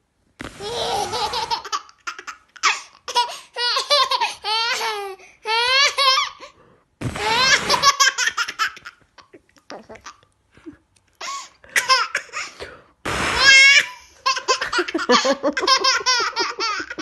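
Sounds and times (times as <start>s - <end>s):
baby girl laughing: 0.6s - 6.5s, 7.2s - 10.3s, 13.4s - 17.0s.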